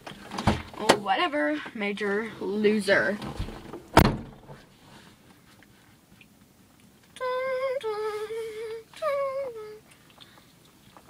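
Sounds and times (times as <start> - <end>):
girl humming a tune: 7.2 - 9.9.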